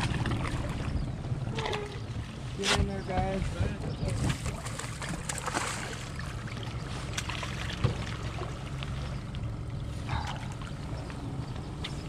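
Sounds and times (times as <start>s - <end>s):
steady low hum: 0.0s - 12.0s
fish splashing at water surface: 4.2s - 9.1s.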